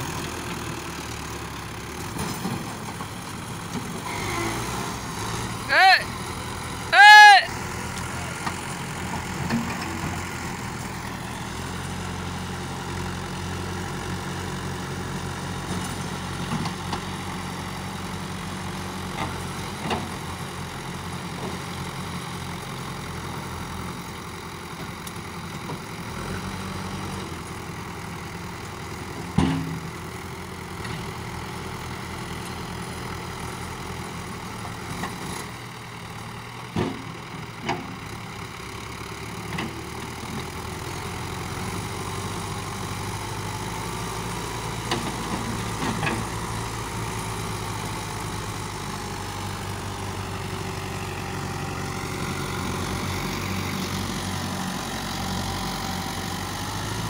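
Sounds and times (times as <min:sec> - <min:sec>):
diesel engines running: 0:00.0 - 0:57.0.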